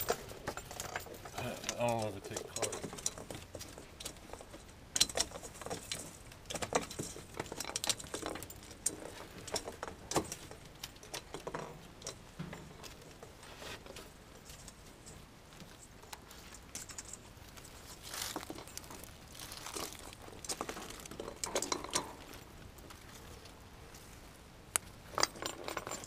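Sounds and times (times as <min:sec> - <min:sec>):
rustling pine branches: 0:12.8 - 0:25.2
jingles: 0:25.0 - 0:26.0.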